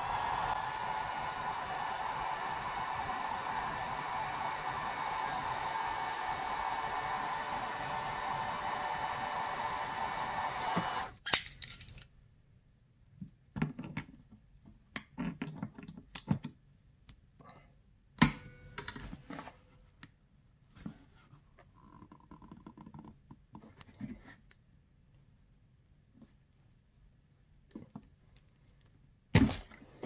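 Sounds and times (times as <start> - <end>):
gas torch hissing: 0.0 - 11.2.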